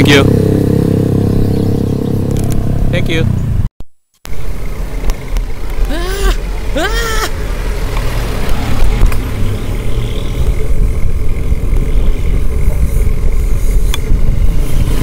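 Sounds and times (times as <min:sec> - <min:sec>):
road traffic: 0:00.0 - 0:15.0
wind rushing on microphone: 0:10.4 - 0:15.0.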